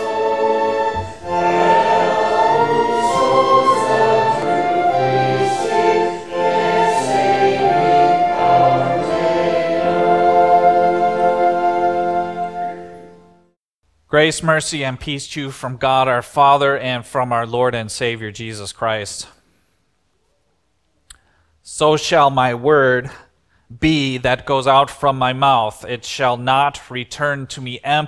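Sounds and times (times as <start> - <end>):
choir singing with accompaniment: 0.0 - 13.4.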